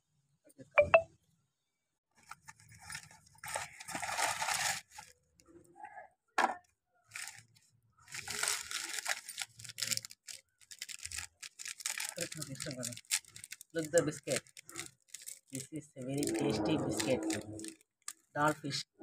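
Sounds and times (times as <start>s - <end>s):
plastic wrappers crinkling and tearing: 2.2s - 5.2s, 7.1s - 16.4s.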